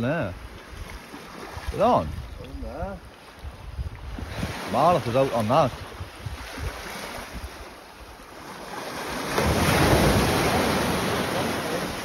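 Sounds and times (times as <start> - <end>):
surf washing over rocks: 0.0 - 12.0
wind on microphone: 0.3 - 8.2.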